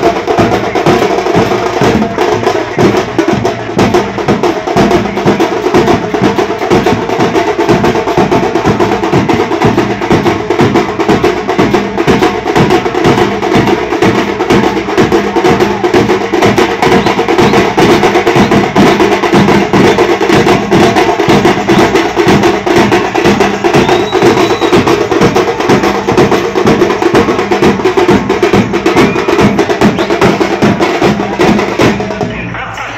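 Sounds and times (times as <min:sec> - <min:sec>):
steel drums beaten with sticks: 0:00.0 - 0:32.3.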